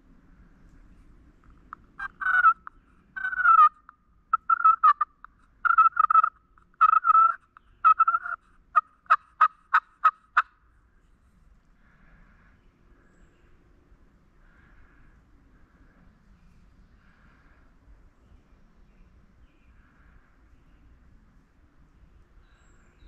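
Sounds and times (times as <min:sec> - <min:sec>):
animal calling loudly: 0:02.0 - 0:05.1, 0:05.7 - 0:08.4.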